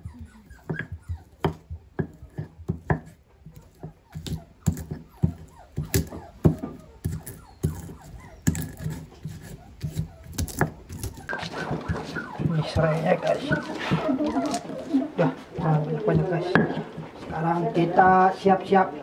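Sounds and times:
stone pestle pounding in mortar: 0.1s - 14.9s.

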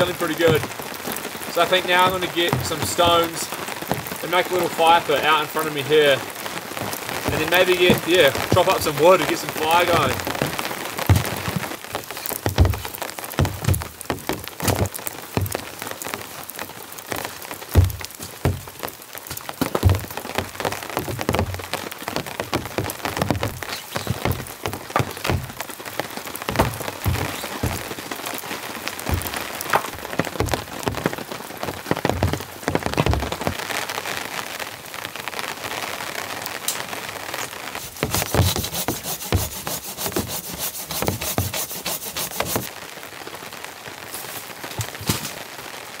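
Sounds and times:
stones knocking: 0.0s - 0.8s, 1.5s - 4.2s, 6.8s - 16.1s, 17.1s - 33.6s, 37.8s - 42.7s
heavy rain on a tarp: 0.0s - 46.0s.

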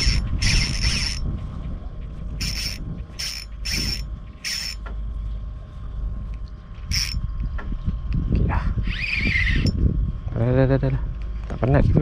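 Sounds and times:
fishing reel drag buzzing: 0.0s - 1.3s, 2.4s - 4.8s, 6.9s - 7.2s, 8.8s - 9.8s
low rumble: 0.0s - 12.0s.

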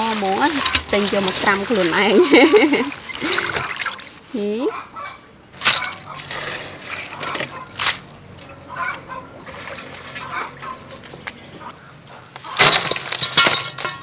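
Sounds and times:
water trickling and splashing: 0.0s - 4.6s, 5.6s - 11.4s.

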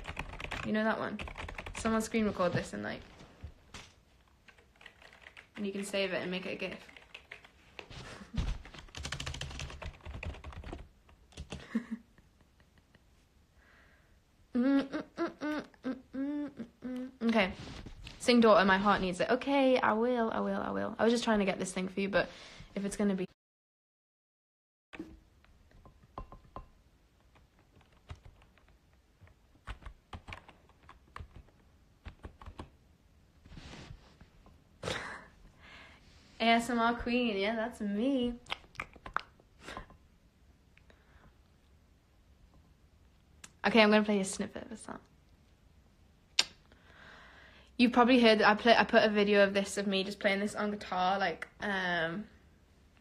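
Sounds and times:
typing on computer keyboard: 0.0s - 1.9s, 4.4s - 7.5s, 8.7s - 11.7s, 27.3s - 28.8s, 29.6s - 32.7s.

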